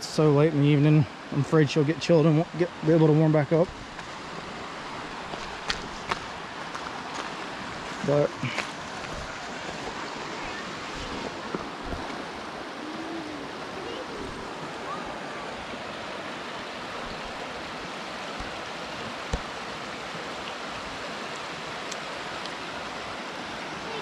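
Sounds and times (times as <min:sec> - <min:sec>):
creek running over rocks: 0:00.0 - 0:24.0.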